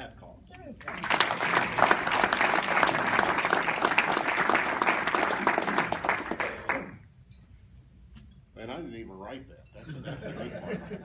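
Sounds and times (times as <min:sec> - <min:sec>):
audience applauding: 0:00.8 - 0:07.0.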